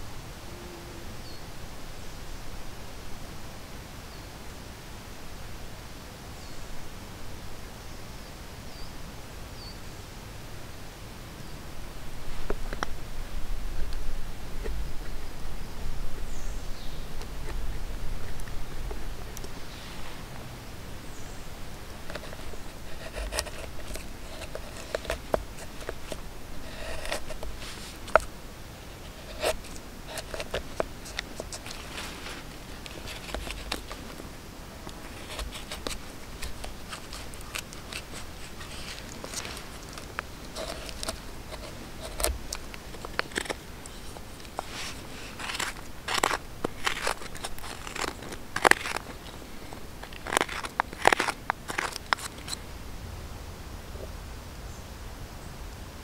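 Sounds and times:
carving tools scraping wood: 22.0s - 28.3s, 28.9s - 52.6s.

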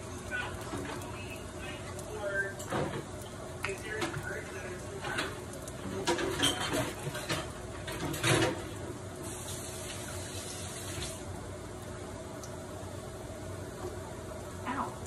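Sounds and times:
faint steady hum: 0.0s - 8.0s, 8.6s - 15.0s
food sizzling in frying pan: 0.0s - 11.8s.

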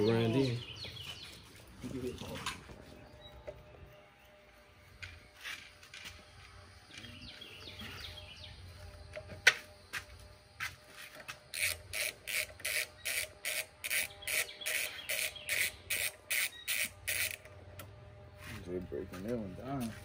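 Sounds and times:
ratchet wrench clicking: 11.5s - 17.5s.

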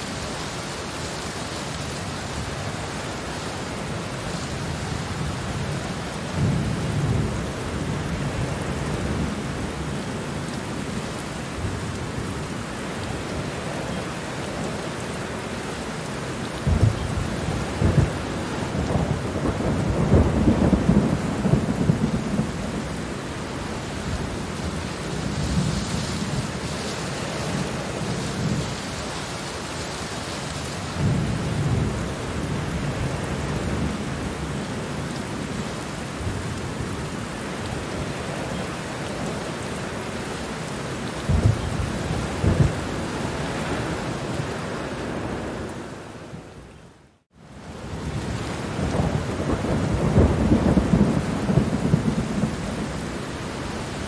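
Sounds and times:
steady rain: 0.0s - 54.0s
thunder rumbling: 16.6s - 34.5s, 41.1s - 46.0s, 47.8s - 54.0s.

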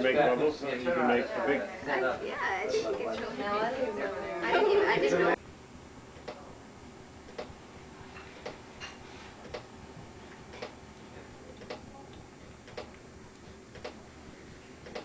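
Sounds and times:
faint regular ticking: 11.5s - 14.0s.

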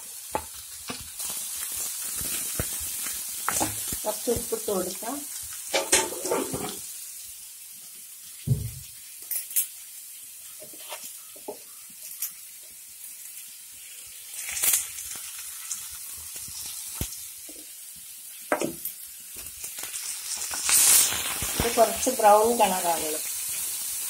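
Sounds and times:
onions sizzling in a pan: 0.0s - 24.0s
low thump: 8.5s - 8.8s.

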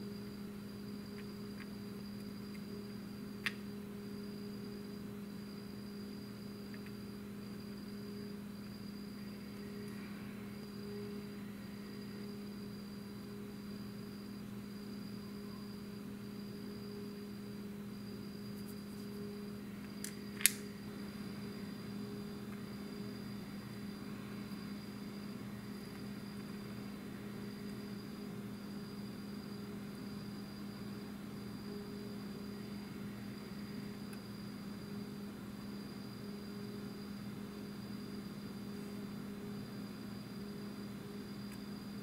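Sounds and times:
electrical hum: 0.0s - 42.0s
plastic parts clicking: 20.0s - 20.6s.

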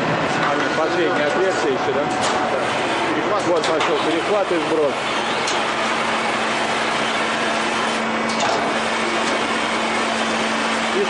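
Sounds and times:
roll-forming machine running: 0.0s - 11.0s.

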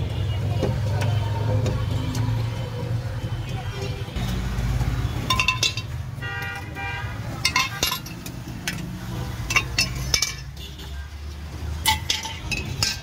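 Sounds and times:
street traffic rumble: 0.0s - 13.0s
ladle clinking against metal pots: 5.2s - 10.8s, 11.7s - 13.0s.

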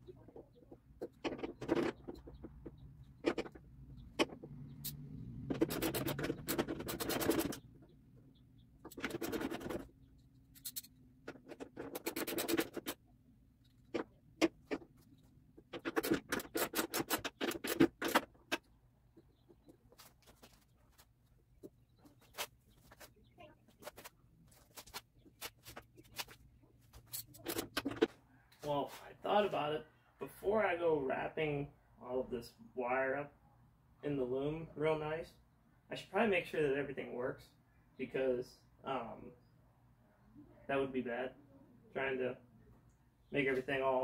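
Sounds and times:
sharp clicks and knocks: 0.2s - 8.0s, 13.6s - 19.9s.

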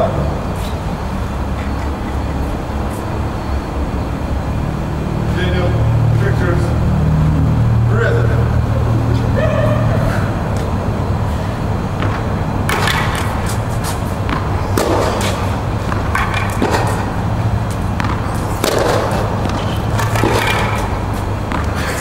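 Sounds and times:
low hum: 0.0s - 22.0s
ball bouncing: 11.9s - 22.0s
racket hitting tennis ball: 11.9s - 22.0s.

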